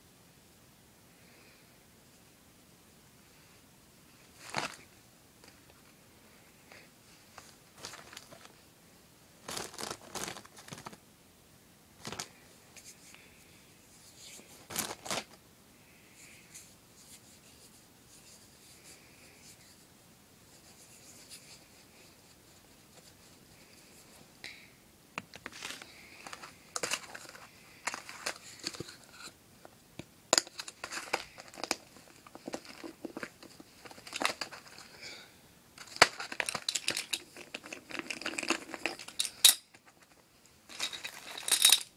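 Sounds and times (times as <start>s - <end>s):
rustling and crinkling: 4.1s - 8.7s, 9.4s - 11.0s, 12.0s - 15.4s, 25.3s - 41.9s.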